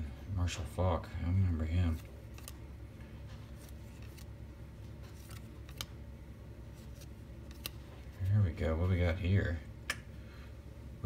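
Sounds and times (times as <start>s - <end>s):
low steady hum: 0.0s - 11.0s
cards clicking and scraping: 1.9s - 6.0s, 6.7s - 8.4s.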